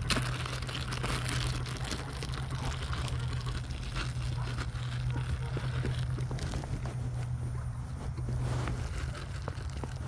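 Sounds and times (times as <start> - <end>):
grass rustling and crinkling: 0.0 - 10.0
phone scraping against fabric: 4.1 - 10.0.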